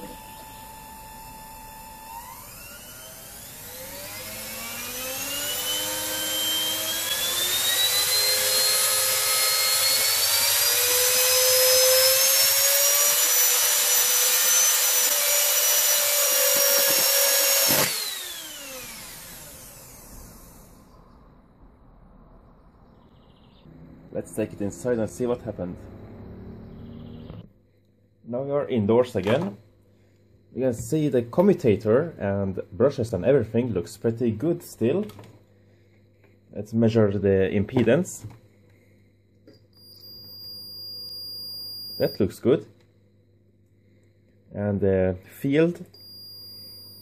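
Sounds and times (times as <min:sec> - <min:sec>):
electric motor whining: 0:00.0 - 0:21.2, 0:23.7 - 0:27.5
sharp crack of motor winding failing: 0:02.1 - 0:20.8.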